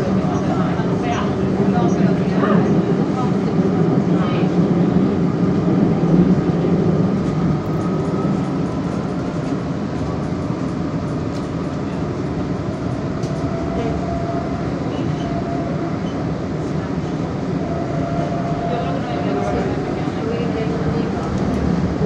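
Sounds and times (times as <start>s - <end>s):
faint train whine: 0.0s - 22.0s
train rumble: 0.0s - 22.0s.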